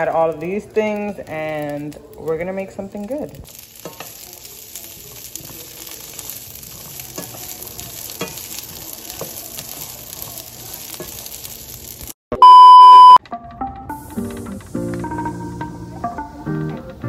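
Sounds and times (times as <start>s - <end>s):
beans sizzling in a pan: 0.0s - 12.2s
loud high beep: 12.3s - 13.2s.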